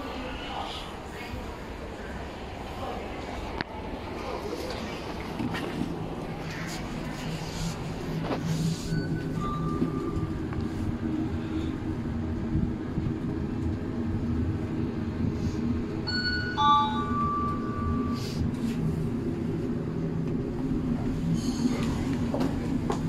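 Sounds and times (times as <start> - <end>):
electronic chime: 16.1 - 18.2.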